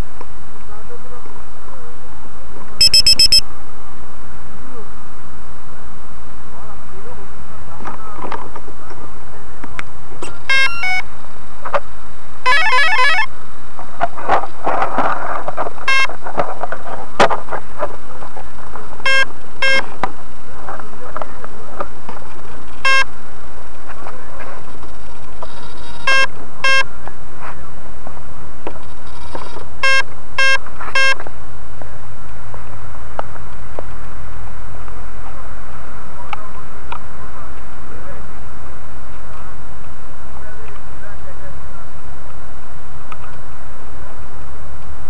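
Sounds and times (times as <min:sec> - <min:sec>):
electronic chirps: 0:02.8 - 0:03.4, 0:10.5 - 0:11.0, 0:12.5 - 0:13.3, 0:19.1 - 0:19.8, 0:26.1 - 0:26.8, 0:29.8 - 0:31.2
fast stepping electronic tones: 0:02.8 - 0:03.4, 0:10.5 - 0:11.0, 0:12.5 - 0:13.3, 0:15.9 - 0:16.1, 0:19.1 - 0:19.8, 0:26.1 - 0:26.8, 0:29.8 - 0:31.2.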